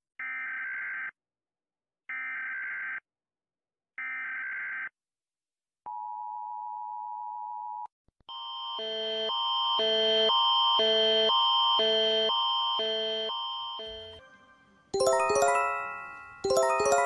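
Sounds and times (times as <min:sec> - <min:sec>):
two-tone alert signal: 0:12.8 - 0:14.4
alternating alert tones: 0:15.0 - 0:17.0.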